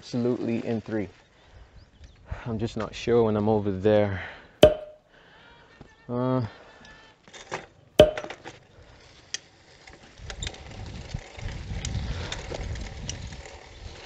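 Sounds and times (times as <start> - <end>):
sharp knock: 4.6 - 5.0, 8.0 - 8.3.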